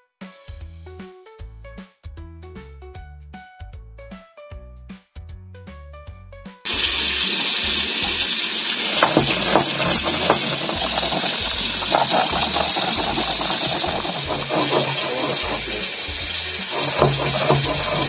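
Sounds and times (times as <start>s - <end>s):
stone roller grinding on stone: 6.7s - 18.0s.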